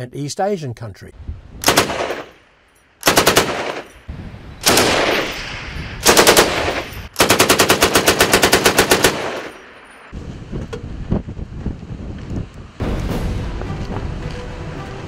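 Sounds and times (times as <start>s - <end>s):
machine gun automatic fire: 1.6s - 2.3s, 3.0s - 3.9s, 4.6s - 5.4s, 6.0s - 9.6s
gunfire echo off hills: 1.6s - 2.4s, 3.0s - 4.0s, 4.6s - 9.8s.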